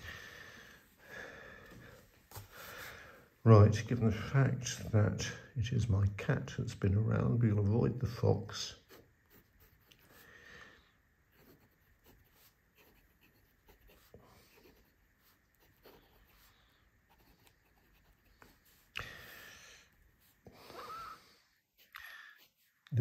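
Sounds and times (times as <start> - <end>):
pen nib scratching paper: 8.8 - 10.2, 11.3 - 18.9.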